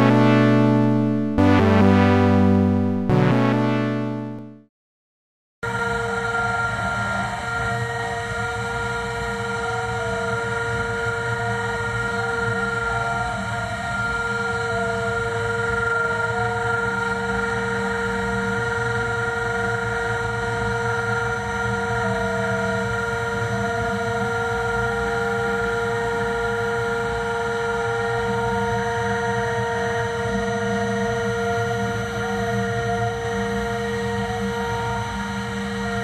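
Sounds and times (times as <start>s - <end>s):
tone stepping in pitch: 0.0s - 4.6s.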